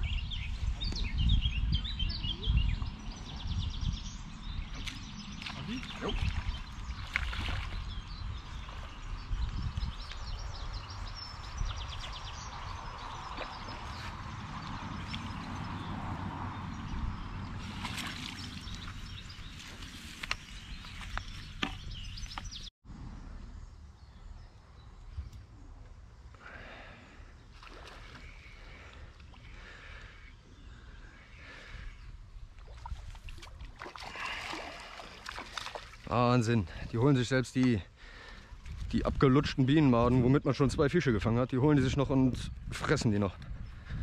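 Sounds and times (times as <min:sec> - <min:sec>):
water splashing: 0:04.8 - 0:08.0, 0:17.4 - 0:20.2, 0:27.5 - 0:29.5, 0:32.6 - 0:36.5.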